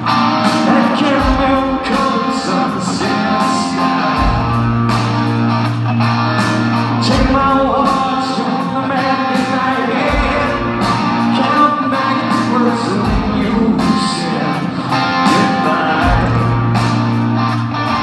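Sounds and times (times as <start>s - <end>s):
country band playing: 0.0s - 18.0s
male vocal singing: 0.6s - 3.9s, 7.0s - 16.8s.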